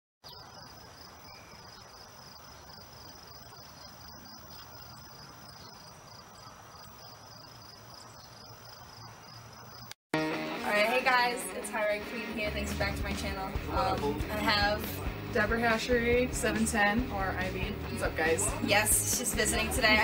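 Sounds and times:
crickets chirping: 0:00.2 - 0:10.0.

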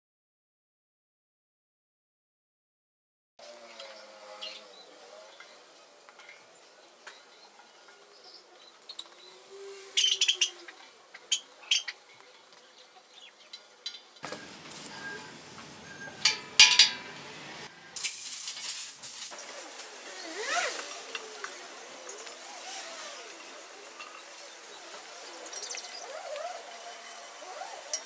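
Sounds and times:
metal grill parts clinking: 0:13.9 - 0:17.7, 0:23.9 - 0:24.4.

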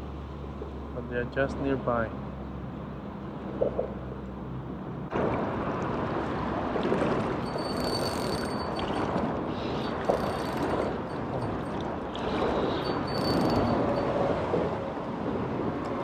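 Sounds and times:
fishing reel whine: 0:07.4 - 0:14.3.

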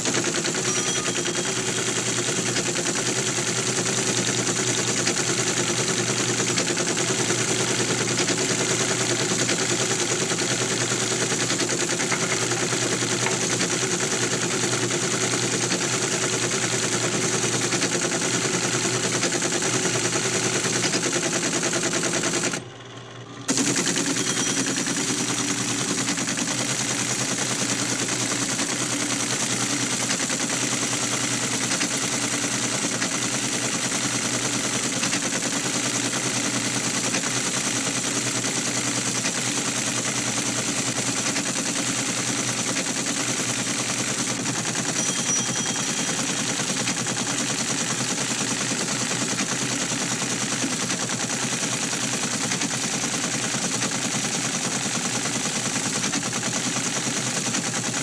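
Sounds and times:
typewriter typing rapidly: 0:00.0 - 0:22.6, 0:23.5 - 0:58.0.

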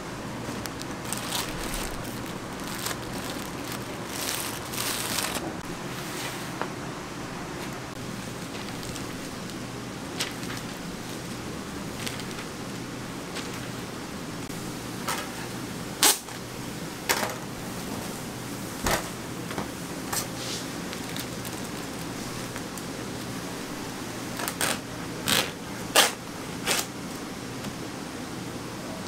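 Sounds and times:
steady low hum: 0:00.0 - 0:29.0
plastic film crackling: 0:00.4 - 0:05.6, 0:08.2 - 0:12.6, 0:20.2 - 0:23.4, 0:24.2 - 0:26.9.

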